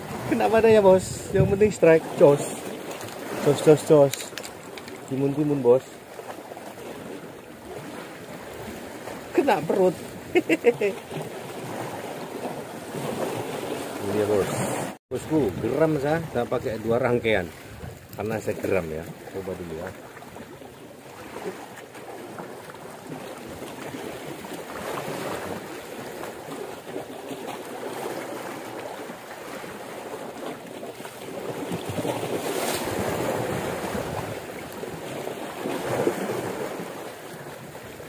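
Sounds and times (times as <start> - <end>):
wind buffeting microphone: 0.0 - 1.8, 15.2 - 18.3
sea waves washing against rocks: 0.0 - 38.0.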